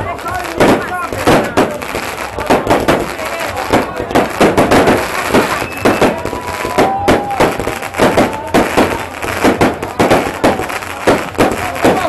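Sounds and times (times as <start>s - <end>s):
fireworks bursting with sharp bangs: 0.0s - 12.0s
firework whistle: 4.4s - 12.0s.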